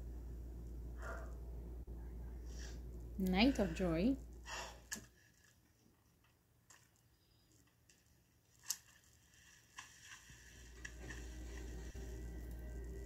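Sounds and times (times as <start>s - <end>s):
low hum: 0.0s - 4.9s, 10.5s - 13.0s.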